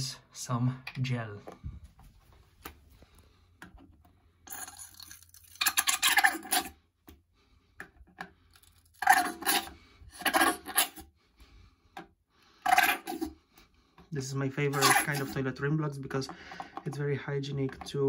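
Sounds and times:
plastic bottle squeezed: 4.5s - 6.7s, 12.6s - 13.4s, 14.7s - 15.4s
gel spluttering and squelching: 4.5s - 6.8s, 8.4s - 11.0s, 12.6s - 13.4s, 14.6s - 15.5s.

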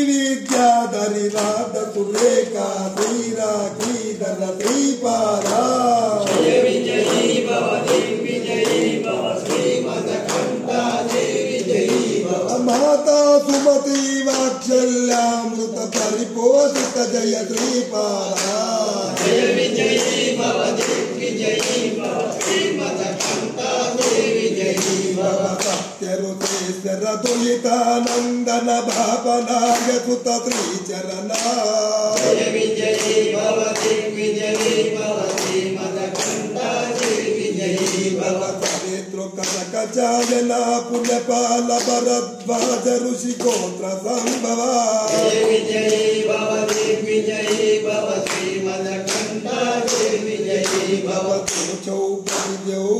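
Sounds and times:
man singing into a microphone: 0.0s - 6.2s, 12.5s - 18.8s, 25.6s - 32.2s, 38.8s - 45.3s, 51.4s - 52.9s
sharp claps: 0.0s - 52.9s.

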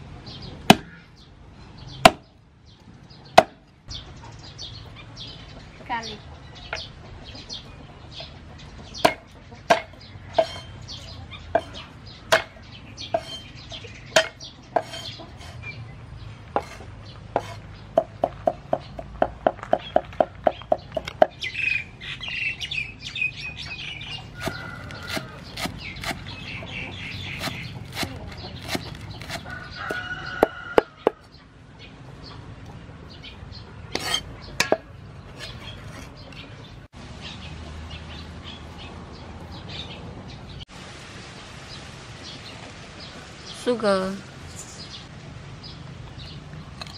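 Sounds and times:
birds chirping: 0.0s - 46.9s
cleaver chopping on wooden board: 0.7s - 0.9s, 2.0s - 2.3s, 3.4s - 3.6s, 9.0s - 10.6s, 11.5s - 12.6s, 24.4s - 26.3s, 27.2s - 30.9s.

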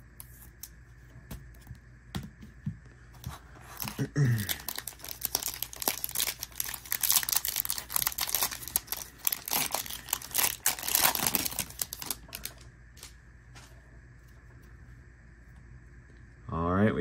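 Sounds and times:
wrapper crinkling and tearing: 3.6s - 13.1s.

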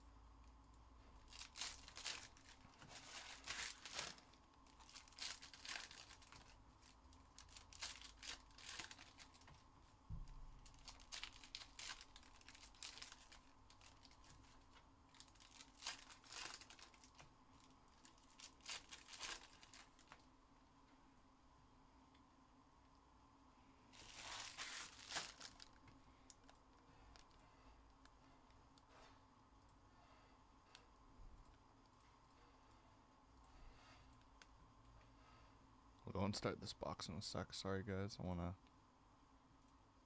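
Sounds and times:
packaging torn and crumpled: 1.2s - 9.5s, 10.6s - 20.2s, 24.0s - 27.3s.

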